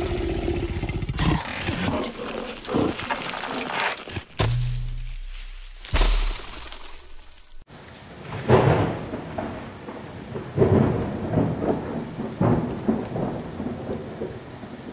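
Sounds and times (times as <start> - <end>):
sharp hit: 4.2 - 7.6
rain rushing: 5.8 - 14.9
thunder rumbling: 8.2 - 14.7.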